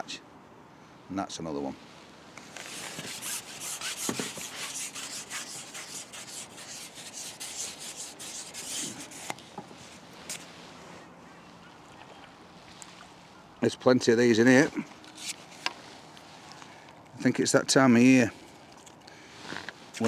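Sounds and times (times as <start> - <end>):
fishing pole scraping through hands: 2.4 - 11.6, 14.5 - 16.8.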